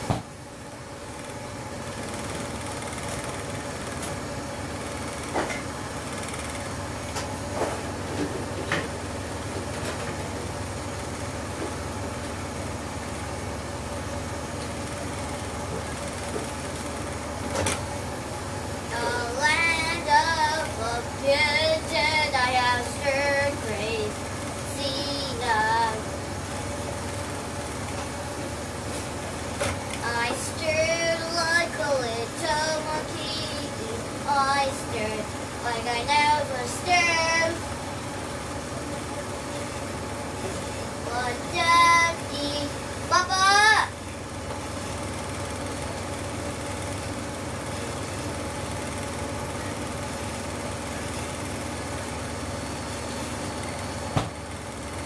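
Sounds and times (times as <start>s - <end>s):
kitchen machinery hum: 0.0s - 55.0s
child singing wordlessly: 18.9s - 26.1s, 30.0s - 37.6s, 41.0s - 44.0s.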